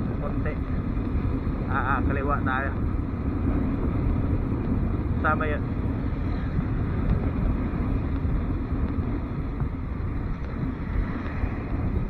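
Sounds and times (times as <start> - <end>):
motorcycle engine and tyre noise: 0.0 - 12.0
wind noise on microphone: 0.0 - 12.0.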